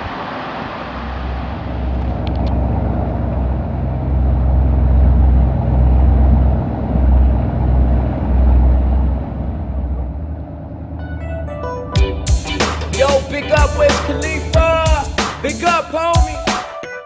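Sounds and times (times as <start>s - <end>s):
boat engine humming: 0.0s - 16.6s.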